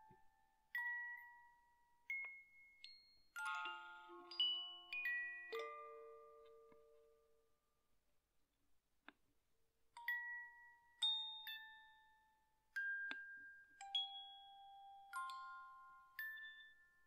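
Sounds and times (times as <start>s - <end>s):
slow bell-like music notes: 0.0s - 7.5s, 10.0s - 17.0s.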